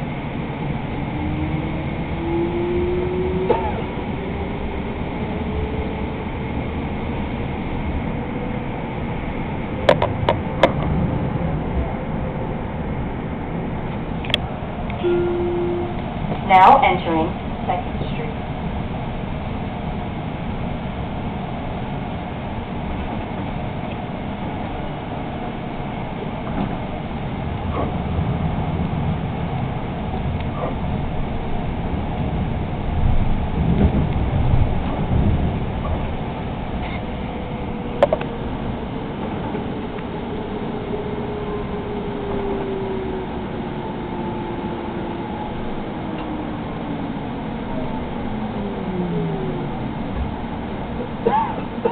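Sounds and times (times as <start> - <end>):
light rail car rumbling: 0.0 - 51.9
faint falling squeals: 36.8 - 51.1.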